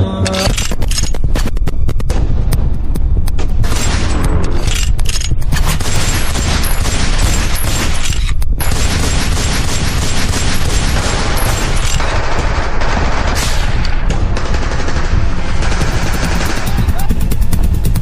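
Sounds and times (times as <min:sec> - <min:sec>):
machine-gun fire: 0:05.5 - 0:18.0.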